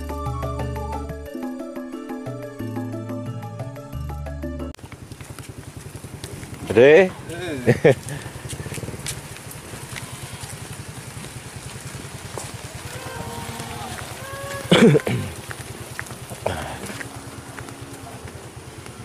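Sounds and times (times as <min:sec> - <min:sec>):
small engine running: 0:04.8 - 0:19.0.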